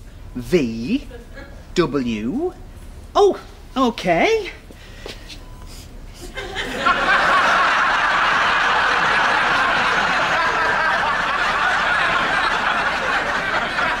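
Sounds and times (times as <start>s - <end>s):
studio audience laughing: 6.2s - 14.0s.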